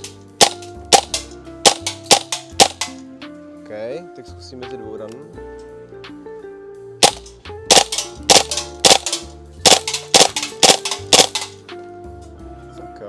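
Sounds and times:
airsoft gun shots cracking: 0.0 - 3.0, 7.0 - 11.6.

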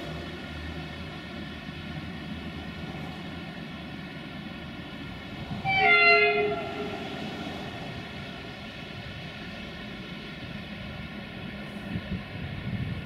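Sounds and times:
train rumble: 0.0 - 13.0
locomotive horn: 5.6 - 7.3.

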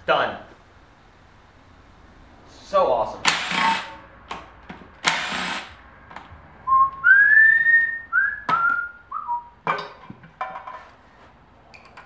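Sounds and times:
impact wrench running: 3.2 - 4.0, 5.0 - 5.8
person whistling a tune: 6.7 - 9.6.

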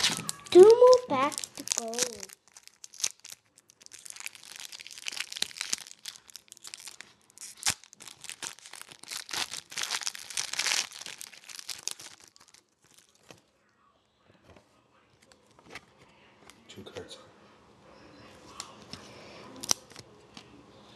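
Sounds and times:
foil wrapper tearing and crinkling: 0.0 - 13.4, 19.6 - 20.0.

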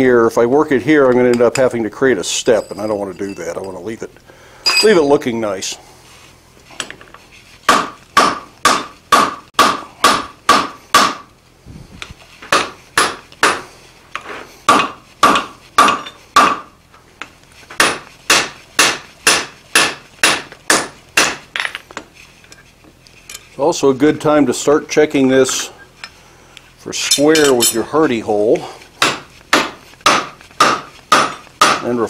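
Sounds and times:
hammer striking steel on an anvil: 4.7 - 5.2, 14.7 - 16.6, 17.8 - 21.8, 27.0 - 27.9, 29.0 - 31.9.

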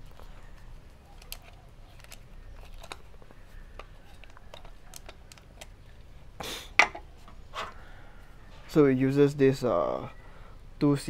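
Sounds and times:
plastic camera body clicks: 1.2 - 5.8.

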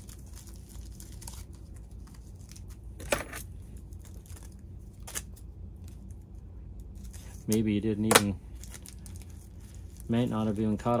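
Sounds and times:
plastic wrap rustling: 0.0 - 3.0, 6.9 - 11.0.

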